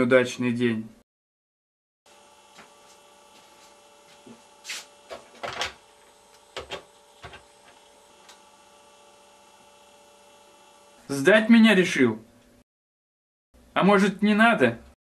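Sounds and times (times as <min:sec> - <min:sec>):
steady electrical hum: 0:02.1 - 0:12.6.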